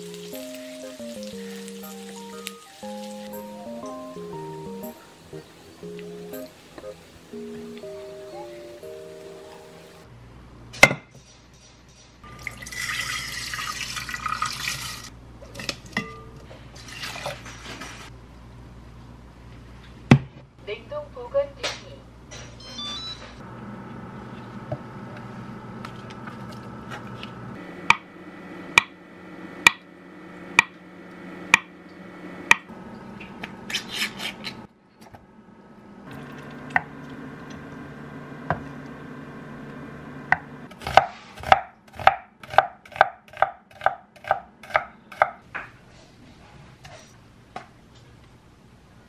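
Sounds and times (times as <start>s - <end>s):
steady low hum: 23.4s - 40.8s
knife chopping on wooden board: 40.7s - 45.4s.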